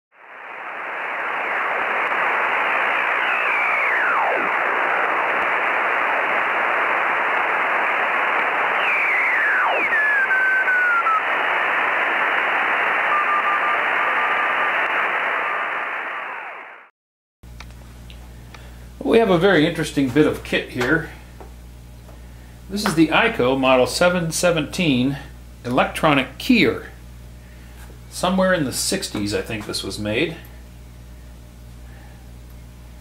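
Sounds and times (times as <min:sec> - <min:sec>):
radio static hiss: 0:00.1 - 0:16.9
whistles sweeping down: 0:08.6 - 0:11.2.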